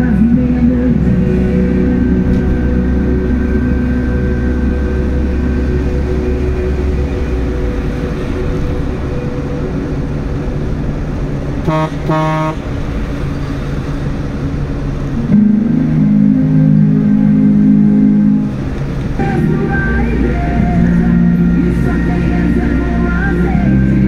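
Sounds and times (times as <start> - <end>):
car engine and tyre noise: 0.0 - 24.0
low steady drone: 0.0 - 24.0
vehicle horn toots: 11.6 - 12.6.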